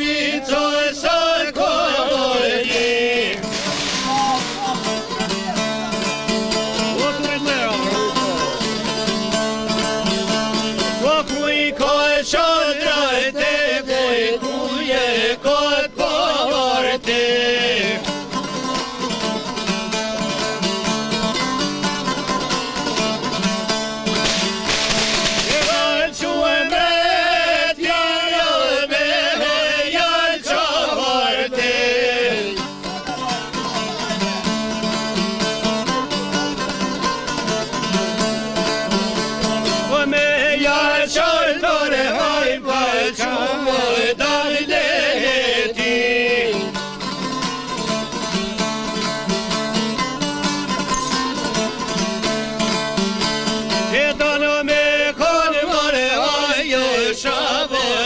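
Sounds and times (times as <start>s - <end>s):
strummed plucked lutes: 0.0s - 29.7s, 30.4s - 58.0s
person singing ornamented melody: 9.7s - 19.6s, 25.5s - 33.8s, 35.9s - 47.3s, 50.6s - 58.0s.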